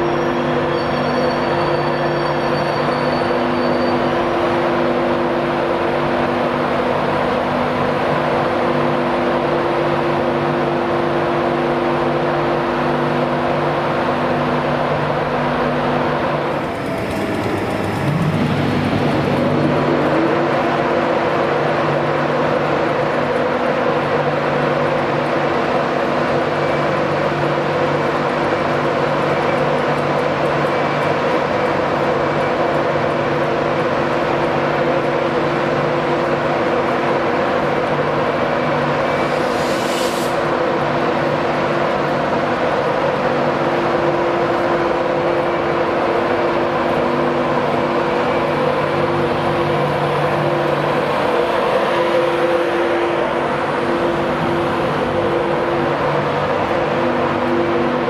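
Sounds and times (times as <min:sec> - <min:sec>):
electric locomotive droning: 0:00.0 - 0:58.0
short high hiss: 0:39.0 - 0:40.8.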